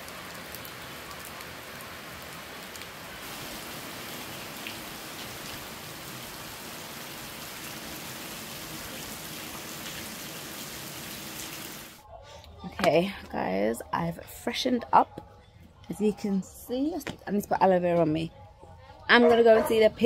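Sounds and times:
steady rain hiss: 0:00.0 - 0:12.0.

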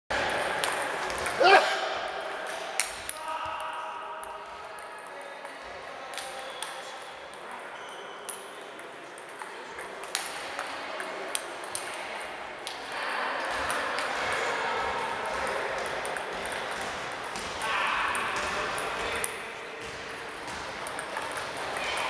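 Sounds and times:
distant ping-pong clicks: 0:00.2 - 0:01.4, 0:02.0 - 0:22.0
table tennis ball clicking: 0:18.8 - 0:21.8.

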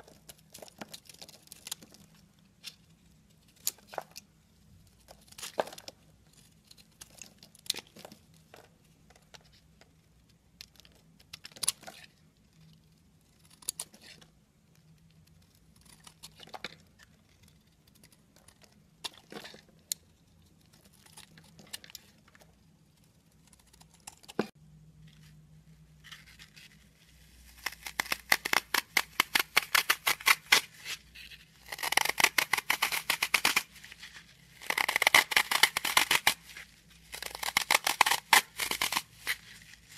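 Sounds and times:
knife shaving soap: 0:12.8 - 0:24.6, 0:26.0 - 0:39.9.

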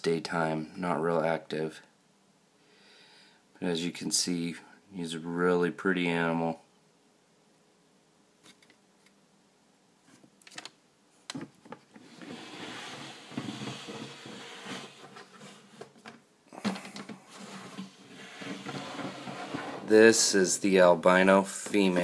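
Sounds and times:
plastic tub rustling and scraping: 0:11.7 - 0:20.6.

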